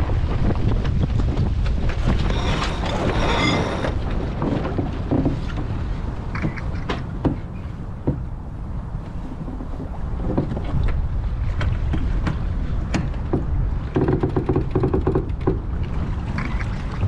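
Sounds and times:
water rushing past boat: 0:00.0 - 0:17.0
wind buffeting microphone: 0:00.0 - 0:17.0
high squeal: 0:02.3 - 0:04.0.

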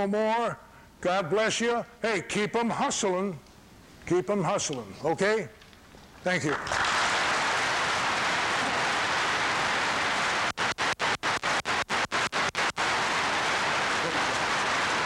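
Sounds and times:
large audience applauding: 0:06.5 - 0:15.0.

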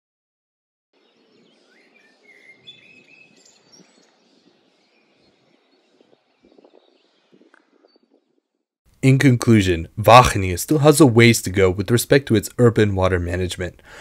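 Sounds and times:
birds chirping and singing: 0:01.0 - 0:08.4.

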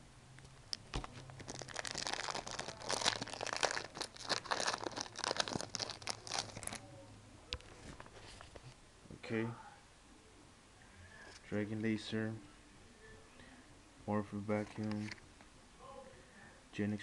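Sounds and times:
foil wrapper tearing and crinkling: 0:00.9 - 0:06.8.

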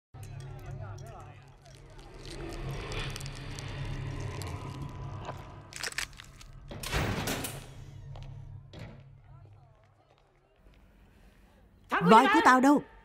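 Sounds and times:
person crunching and chewing: 0:01.5 - 0:06.6.

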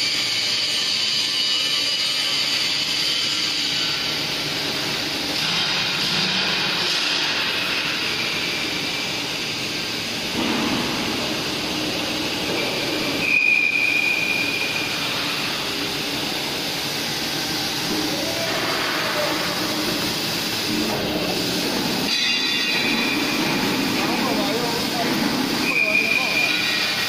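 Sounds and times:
high squeal: 0:12.6 - 0:15.2, 0:25.6 - 0:27.0.

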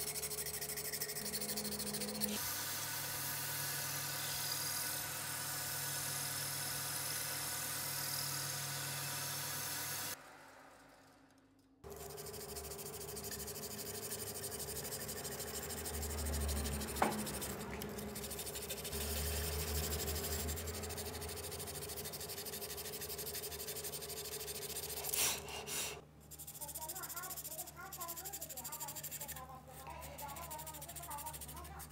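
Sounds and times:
motor hum: 0:00.0 - 0:11.0, 0:11.8 - 0:25.4
abrasive rubbing on wood: 0:13.1 - 0:31.9.

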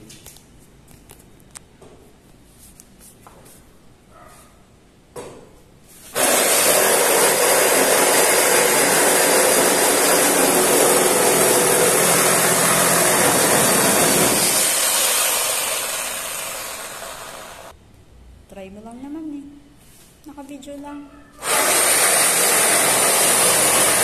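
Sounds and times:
reciprocating saw cutting wood: 0:06.2 - 0:17.7, 0:21.4 - 0:24.0.

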